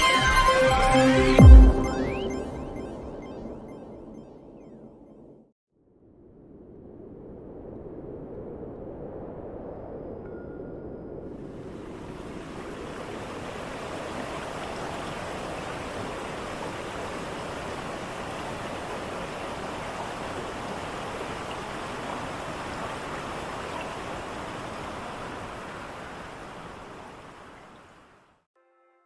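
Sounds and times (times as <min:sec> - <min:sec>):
waterfall rushing: 0:11.6 - 0:28.0.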